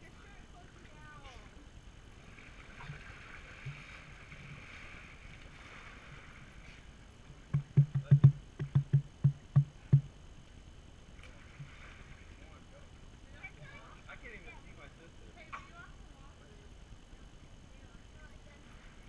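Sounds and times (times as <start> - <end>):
faint water hiss: 0.0 - 19.0
hollow knocks on plastic housing: 7.5 - 10.1.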